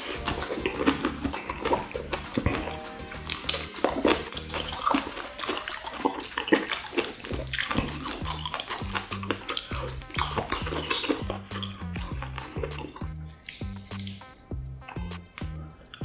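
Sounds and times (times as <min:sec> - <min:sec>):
wet chewing and lip-smacking: 0:00.0 - 0:16.0.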